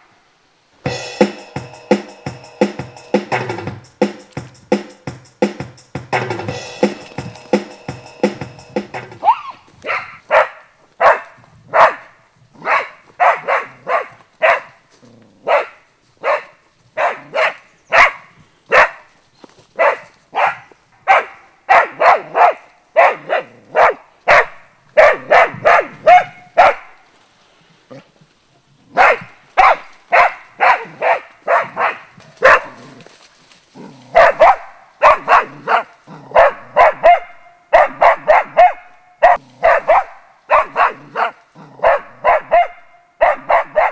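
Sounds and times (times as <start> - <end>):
dog barking: 9.2 - 14.8, 15.4 - 19.1, 19.8 - 27.0, 28.9 - 33.0, 34.1 - 43.9.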